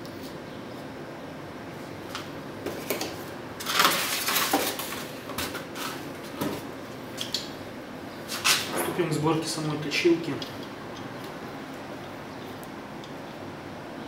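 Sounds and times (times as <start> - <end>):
foam packaging scraping rustle: 3.6 - 6.1.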